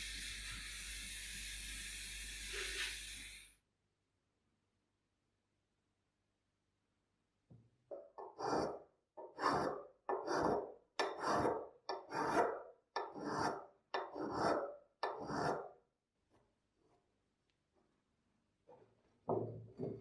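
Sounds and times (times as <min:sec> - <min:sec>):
hand file rasping on metal: 0:08.2 - 0:15.8.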